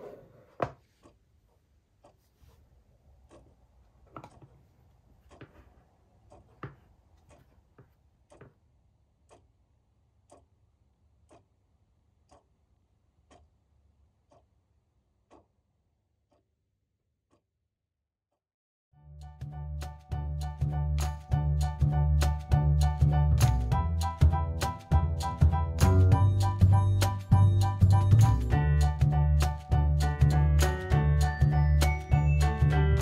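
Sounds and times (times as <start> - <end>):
clock ticking: 3.0 - 16.5
music: 19.0 - 33.0.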